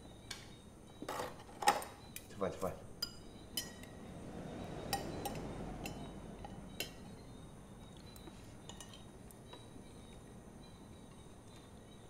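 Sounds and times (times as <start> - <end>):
faint background rush: 0.0 - 12.0
cutlery clinking on plates: 8.6 - 9.1.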